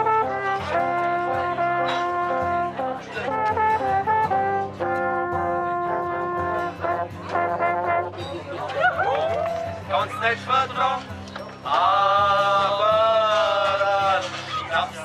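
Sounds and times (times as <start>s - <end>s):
alphorns playing in harmony: 0.0s - 10.4s.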